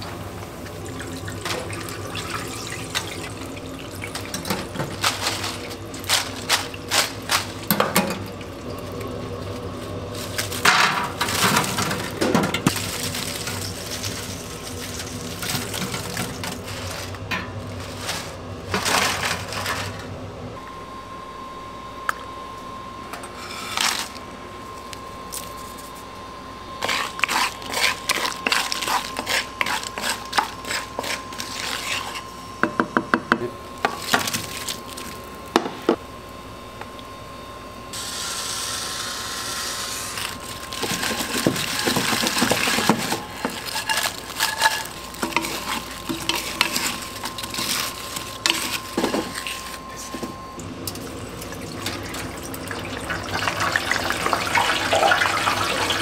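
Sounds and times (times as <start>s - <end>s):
steady high whine: 0.0s - 51.8s
food sizzling: 12.7s - 18.4s
utensil scraping a wok: 26.8s - 32.3s, 39.4s - 50.2s.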